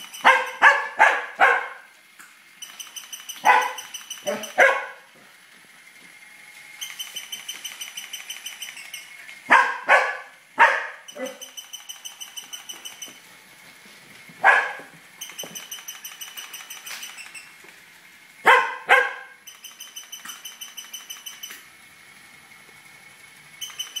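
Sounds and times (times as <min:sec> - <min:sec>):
toy high-pitched pulsing: 0:00.0 - 0:01.4, 0:02.5 - 0:05.2, 0:05.8 - 0:13.3, 0:14.4 - 0:24.0
dog barking: 0:00.2 - 0:01.9, 0:03.4 - 0:05.0, 0:09.5 - 0:11.4, 0:14.4 - 0:14.9, 0:18.5 - 0:19.4.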